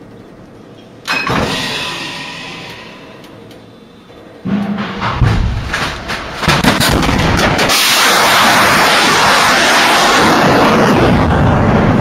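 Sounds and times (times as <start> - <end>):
sharp blasts: 4.5 - 12.0
rocket exhaust roar: 5.1 - 12.0.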